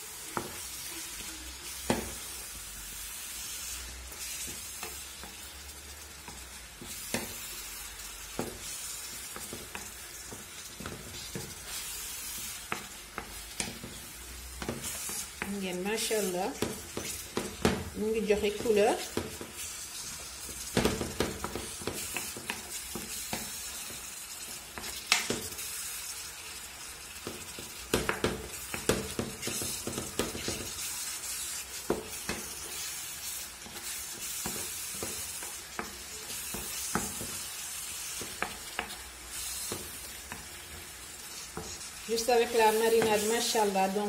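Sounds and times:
meat sizzling in frying pan: 0.0 - 44.0
wooden spatula scraping pan: 8.4 - 23.6.

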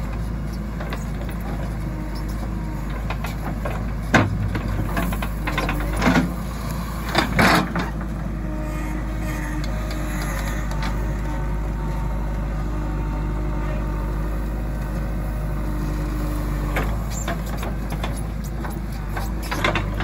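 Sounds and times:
diesel engine running: 0.0 - 20.0
bucket clanking and scraping soil: 3.0 - 8.0.

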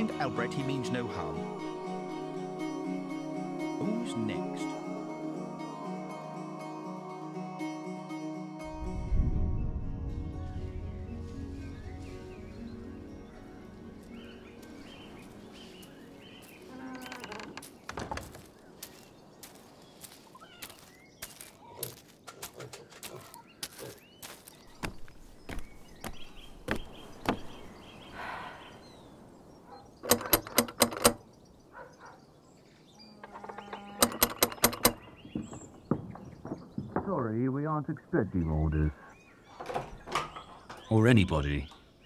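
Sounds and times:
birds chirping: 0.0 - 7.6, 8.7 - 42.0
footsteps: 14.0 - 27.6
loud knocks: 34.2 - 37.2.

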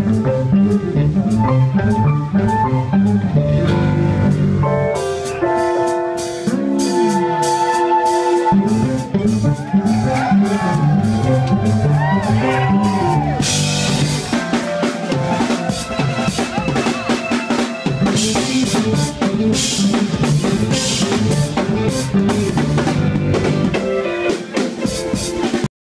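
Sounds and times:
live funk band playing: 0.0 - 25.7
drum kit hits: 8.4 - 25.7.

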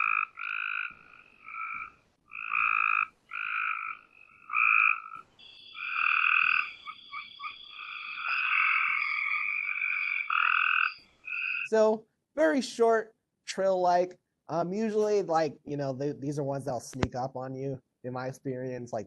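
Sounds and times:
tree frog trills: 0.0 - 11.9.

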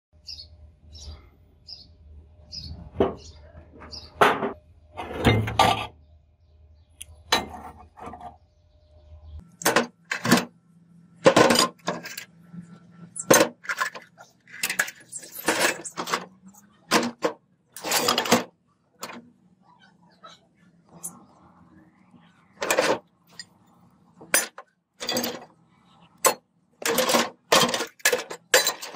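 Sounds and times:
scrap metal clanking: 3.1 - 6.0, 9.6 - 10.5, 11.2 - 19.2, 22.6 - 23.6, 24.2 - 25.5, 26.2 - 28.9.

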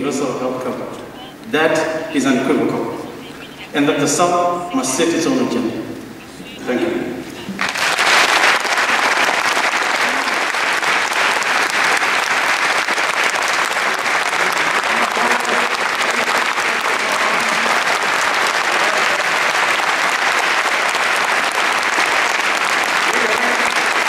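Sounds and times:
audience applauding: 7.5 - 24.0.

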